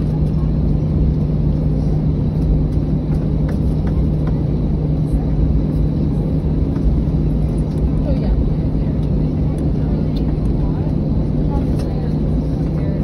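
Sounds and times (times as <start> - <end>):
jet engines humming inside cabin: 0.0 - 13.0
rumble of aircraft rolling: 0.0 - 13.0.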